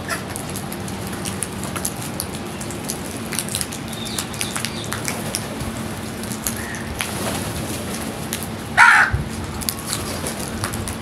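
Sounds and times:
beaks tapping on concrete: 3.4 - 5.4
crow cawing loudly: 8.8 - 9.2
soft crow calls: 8.8 - 9.2.

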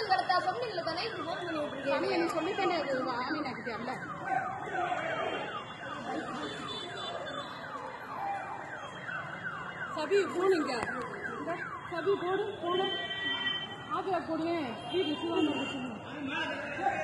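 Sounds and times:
electronic siren wailing: 0.5 - 13.2.

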